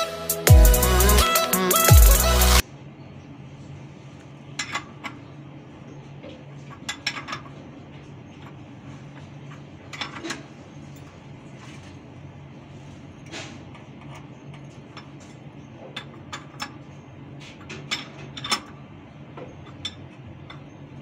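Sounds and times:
spanner clinking on metal bolts: 0:04.6 - 0:05.2, 0:17.6 - 0:18.8.

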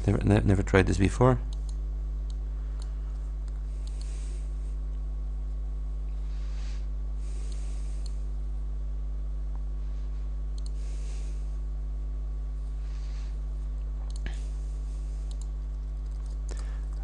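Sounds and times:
electrical mains hum: 0:00.0 - 0:17.0
faint mouse clicks: 0:01.5 - 0:04.1, 0:10.6 - 0:10.8, 0:15.3 - 0:17.0.

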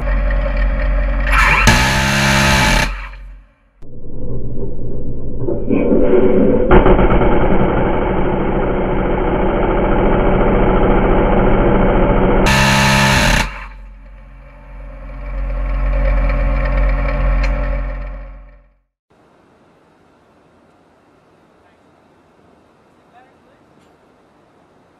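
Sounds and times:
low rumble: 0:02.9 - 0:18.8.

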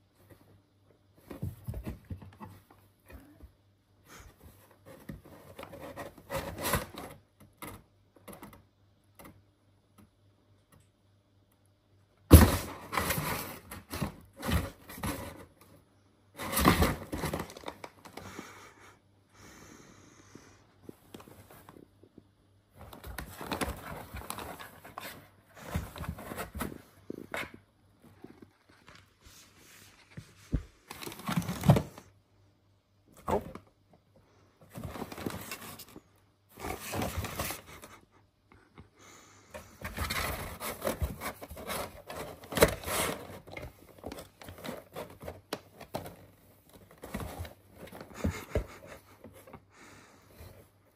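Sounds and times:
kitten scratching cardboard box: 0:04.5 - 0:07.2, 0:39.5 - 0:49.6.

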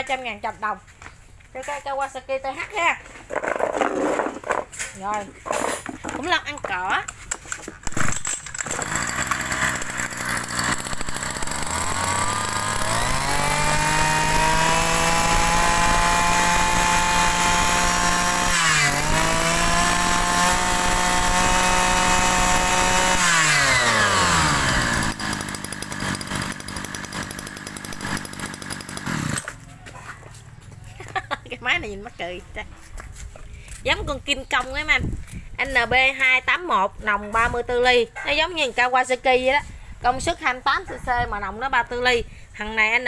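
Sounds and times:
brush cutter engine revving: 0:07.7 - 0:29.7.

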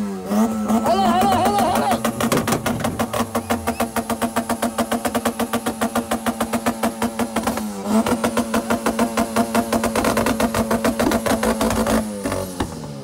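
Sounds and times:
car engine on launch limiter: 0:00.0 - 0:13.0
rapid exhaust bangs: 0:00.6 - 0:12.8.

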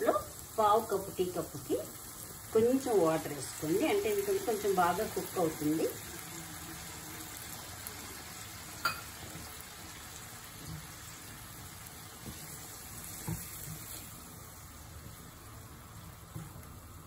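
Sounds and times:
food sizzling in oil: 0:00.0 - 0:17.0
spatula stirring in pan: 0:06.0 - 0:16.8.

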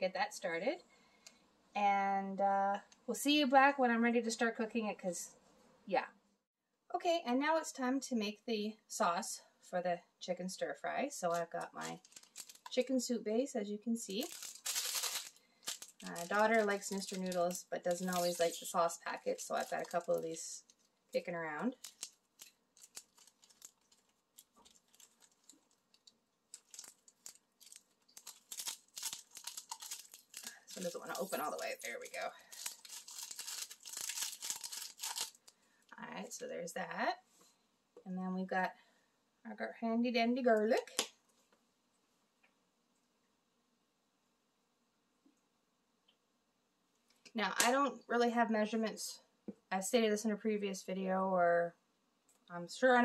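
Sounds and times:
foil packet crinkling: 0:11.3 - 0:12.9, 0:14.1 - 0:35.6.

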